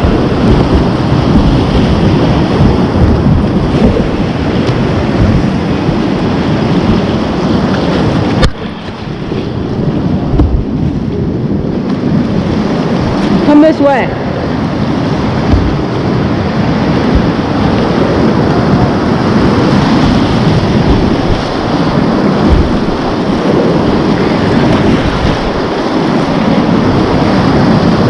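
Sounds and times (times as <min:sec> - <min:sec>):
whitewater rapids rushing: 0:12.0 - 0:28.0.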